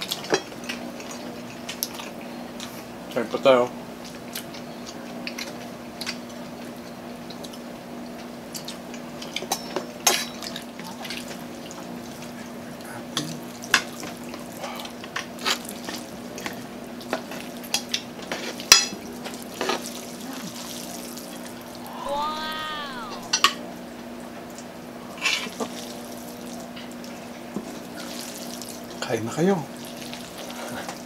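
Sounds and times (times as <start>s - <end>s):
person's short voiced sound: 21.7s - 23.4s.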